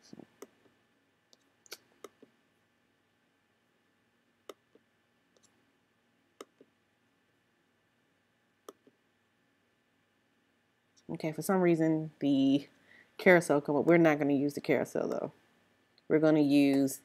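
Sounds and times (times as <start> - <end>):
low steady hum: 0.0 - 17.0
computer mouse clicks: 6.4 - 6.7, 8.6 - 9.0.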